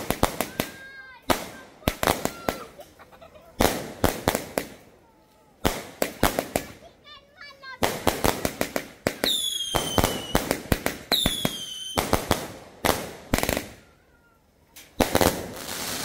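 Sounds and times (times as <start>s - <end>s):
firework bangs: 0.0s - 4.9s, 5.6s - 14.0s, 14.8s - 16.0s
firework crackling: 0.0s - 16.0s
falling firework whistles: 9.2s - 12.3s.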